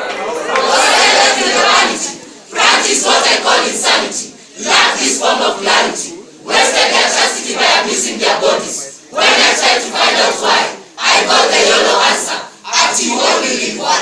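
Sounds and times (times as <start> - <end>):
group of voices reciting in unison: 0.0 - 14.0.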